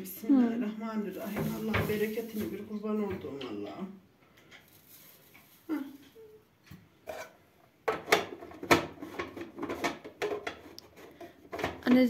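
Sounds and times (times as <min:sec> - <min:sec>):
plastic clicks and knocks: 0:07.8 - 0:12.0.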